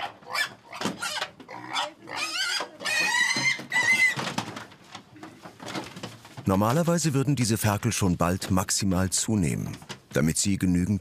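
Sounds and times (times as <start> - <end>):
young pigs squealing: 0.0 - 4.2.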